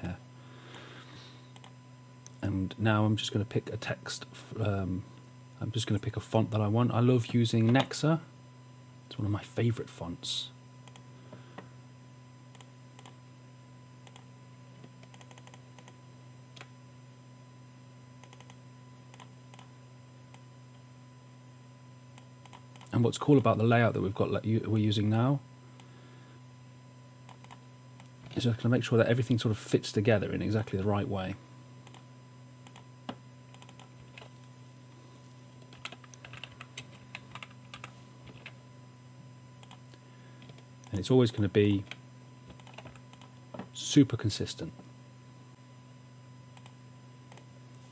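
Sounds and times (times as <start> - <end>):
faint low hum: 0.0 - 47.9
keyboard typing: 15.0 - 16.0, 33.5 - 34.3, 35.7 - 38.5, 42.5 - 43.3
typing on computer keyboard: 42.5 - 43.3.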